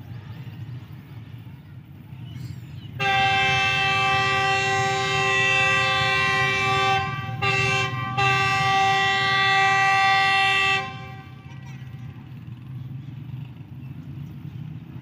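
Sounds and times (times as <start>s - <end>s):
low rumble of train: 0.0s - 15.0s
locomotive horn blast: 2.9s - 12.6s.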